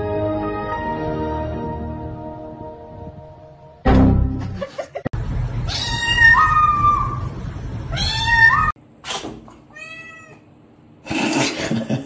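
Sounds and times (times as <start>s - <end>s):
kitten meowing: 5.7s - 7.3s, 7.9s - 8.8s, 9.7s - 10.4s.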